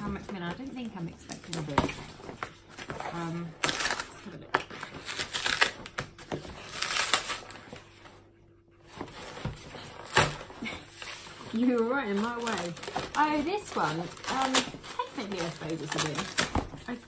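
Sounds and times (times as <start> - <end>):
packaging torn and crinkled: 3.6 - 7.6, 11.7 - 16.5.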